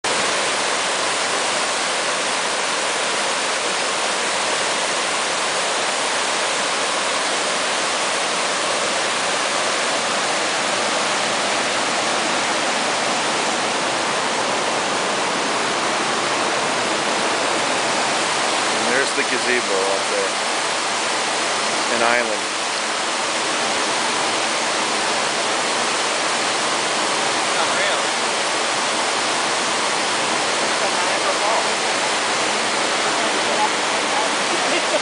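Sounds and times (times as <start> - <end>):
floodwater rushing: 0.0 - 35.0.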